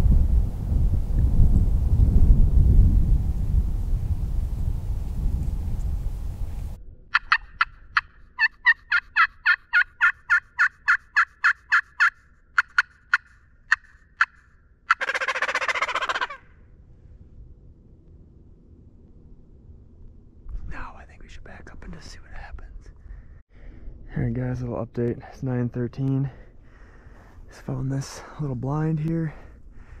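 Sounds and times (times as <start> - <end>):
wind rumble on microphone: 0.0 - 8.0, 16.7 - 25.0
turkey gobble: 7.1 - 16.5
turkey yelping: 7.1 - 16.6.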